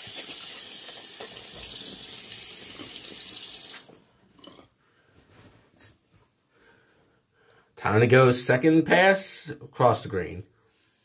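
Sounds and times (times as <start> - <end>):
sink tap running: 0.0 - 4.0.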